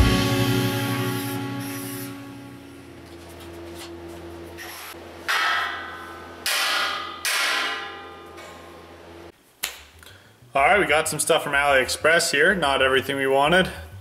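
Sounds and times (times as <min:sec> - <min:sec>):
hammer striking steel tube: 0:05.3 - 0:08.7.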